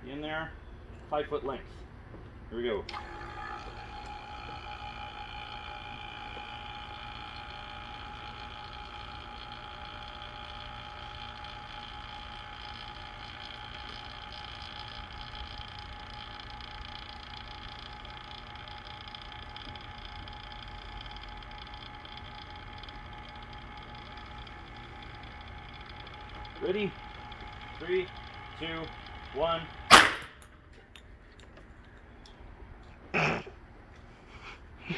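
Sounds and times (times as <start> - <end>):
electric vacuum pump whining: 2.8 - 30.6.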